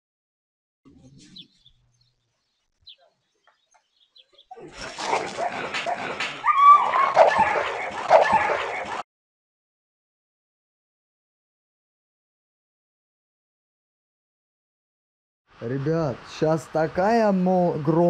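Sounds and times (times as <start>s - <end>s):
dogs fighting: 4.4s - 9.0s
dog high-pitched cry: 6.4s - 9.0s.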